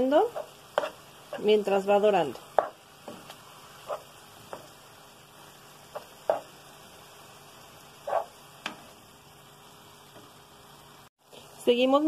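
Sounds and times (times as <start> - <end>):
meat sizzling in a pot: 0.0 - 12.0
spoon scraping and tapping a pot: 0.3 - 1.4, 2.5 - 4.7.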